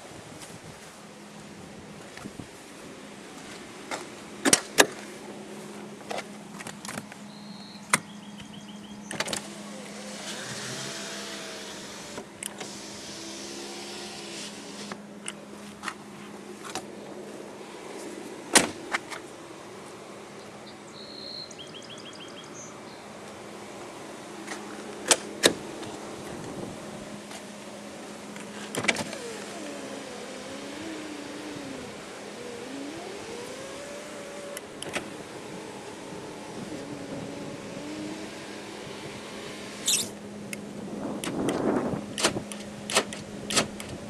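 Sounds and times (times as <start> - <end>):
electric motor whining: 9.2 - 15.0, 28.8 - 40.2
sharp clicks and knocks: 42.2 - 44.0.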